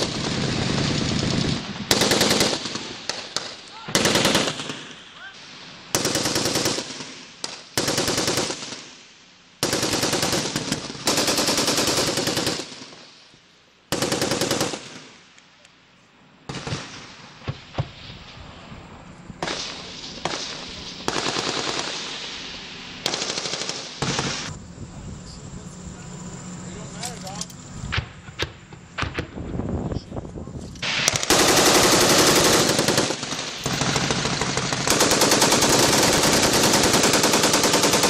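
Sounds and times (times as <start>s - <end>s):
machine-gun bursts: 1.9s - 4.8s, 5.9s - 7.1s, 7.8s - 8.8s, 9.6s - 13.0s, 13.9s - 15.0s, 21.1s - 22.0s, 23.0s - 24.5s, 30.8s - 38.0s.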